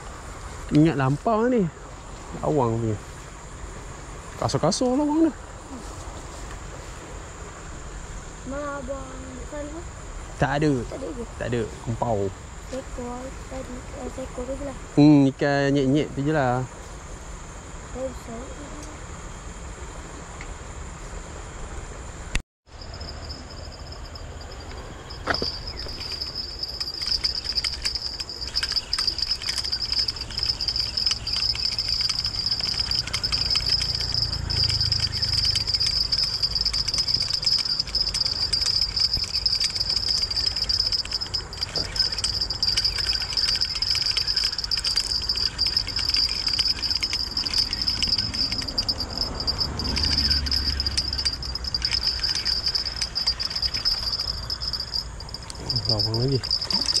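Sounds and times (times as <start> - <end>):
insects chirring: 0.0 - 57.0.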